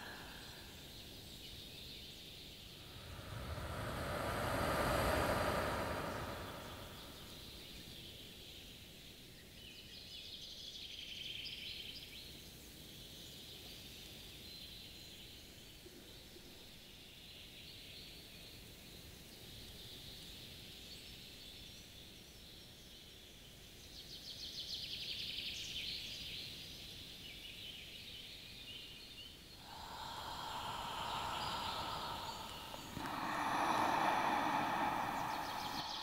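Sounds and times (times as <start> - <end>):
insects and birds hissing: 0.0 - 7.7, 29.5 - 36.0
low rushing noise: 2.7 - 7.6, 29.6 - 36.0.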